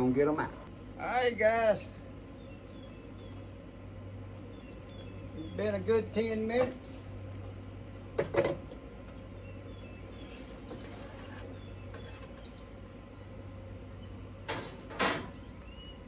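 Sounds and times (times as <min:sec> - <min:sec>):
steady low hum: 0:00.0 - 0:16.0
faint bird chirps: 0:02.3 - 0:05.7, 0:09.0 - 0:14.5, 0:15.3 - 0:16.0.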